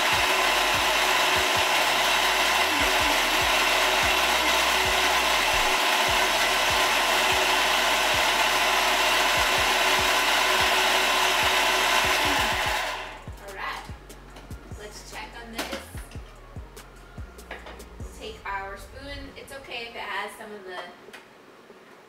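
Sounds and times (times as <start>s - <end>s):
food chopper motor whirring: 0.0s - 13.3s.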